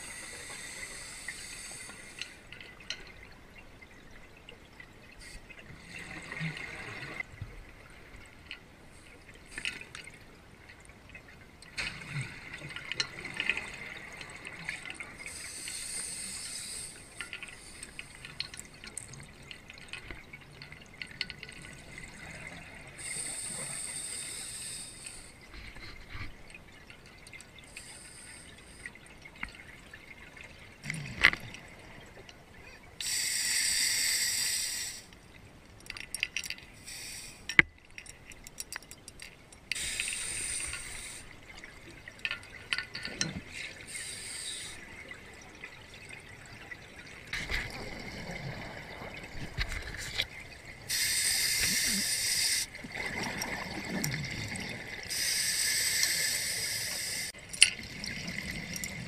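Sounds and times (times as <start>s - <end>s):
low hiss: 0.0s - 12.0s, 14.6s - 25.8s, 26.4s - 29.6s, 30.8s - 45.5s, 46.5s - 53.6s, 54.2s - 59.0s
underwater exhaled bubbles: 43.0s - 55.2s, 57.0s - 59.0s.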